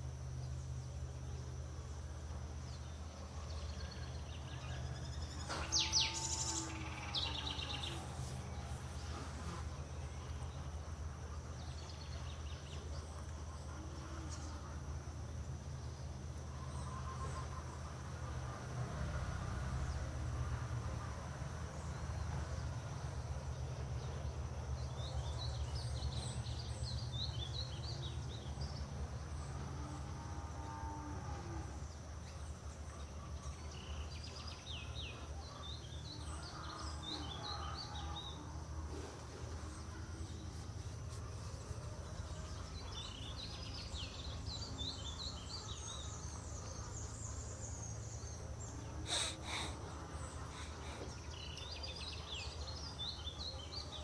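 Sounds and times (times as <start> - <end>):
high insect drone: 3.9 - 19.6, 35.9 - 53.7
small birds chirping: 31.8 - 54.0.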